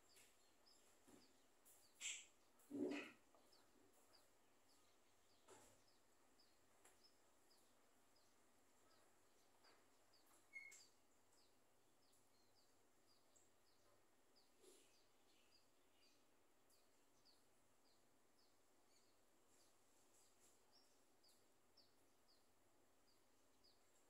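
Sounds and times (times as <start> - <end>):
faint high chirps: 8.8 - 17.5.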